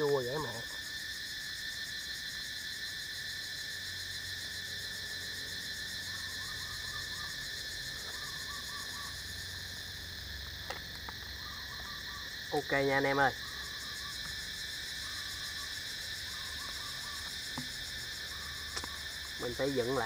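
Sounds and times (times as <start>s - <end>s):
insect chorus: 0.0s - 20.0s
faint chirping calls: 6.0s - 9.8s, 11.0s - 20.0s.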